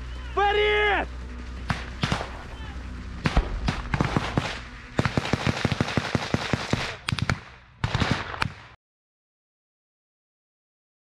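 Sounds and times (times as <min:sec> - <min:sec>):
automatic rifle fire: 0:01.7 - 0:02.4, 0:03.2 - 0:08.8
single rifle shots: 0:01.7 - 0:02.5, 0:03.2 - 0:08.8.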